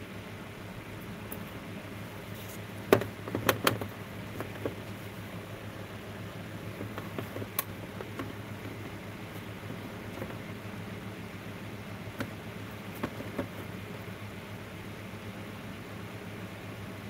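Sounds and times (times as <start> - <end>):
low steady hum: 0.0 - 17.0
knocks and clicks on metal tray: 2.9 - 4.8, 6.7 - 9.0, 9.6 - 10.5, 12.2 - 12.4, 13.0 - 13.7.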